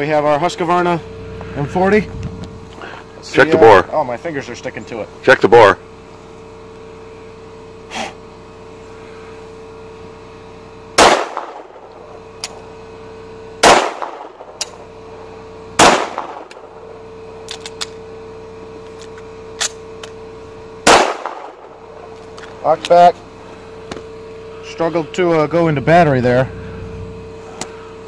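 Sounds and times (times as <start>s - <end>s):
pistol shots: 11.0s - 11.9s, 13.6s - 14.8s, 15.8s - 16.7s, 20.8s - 21.7s.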